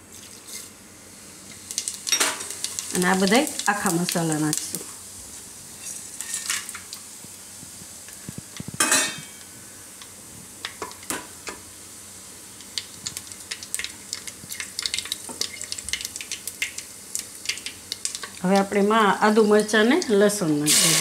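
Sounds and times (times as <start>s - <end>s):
spices sizzling in hot oil: 0.0s - 21.0s
loud hiss: 20.6s - 21.0s.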